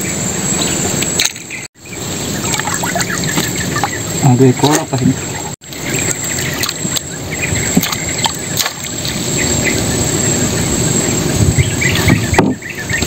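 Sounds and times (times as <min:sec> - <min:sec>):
bird chirps: 0:00.0 - 0:13.0
steady low rushing noise: 0:00.0 - 0:13.0
water splashing and dripping: 0:02.3 - 0:09.8.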